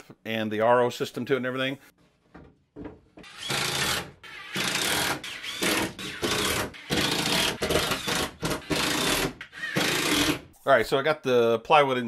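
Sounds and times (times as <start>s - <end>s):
cordless drill driving screws: 3.2s - 10.4s.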